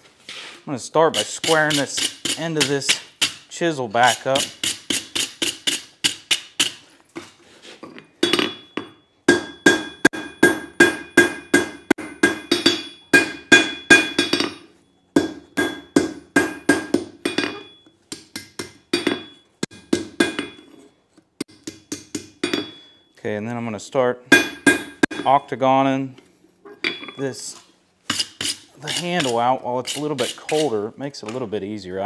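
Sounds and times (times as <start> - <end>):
hammer striking hot steel on anvil: 4.3 - 6.8, 8.2 - 20.8, 21.4 - 23.0, 24.3 - 25.4
anvil ringing: 8.2 - 20.8, 21.5 - 23.1, 24.3 - 25.4.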